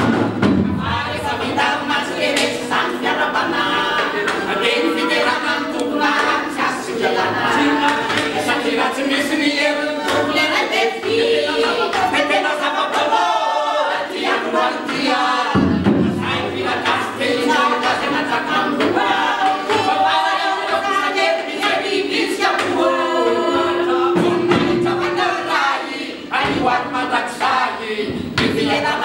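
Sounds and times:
large drum: 0.0s - 1.4s, 15.5s - 16.6s, 23.5s - 26.9s
group of men and women singing: 0.0s - 29.0s.

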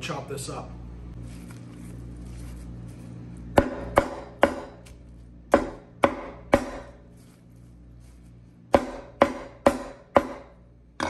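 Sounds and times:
cleaver chopping on wooden board: 3.6s - 4.8s, 5.5s - 7.0s, 8.7s - 10.5s.

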